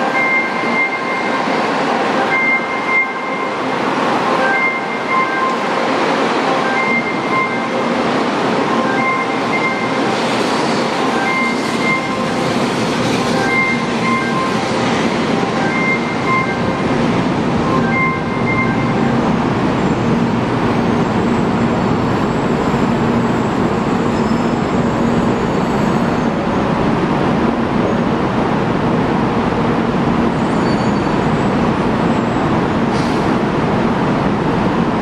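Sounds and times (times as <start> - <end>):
train wheels running: 5.5 - 27.8.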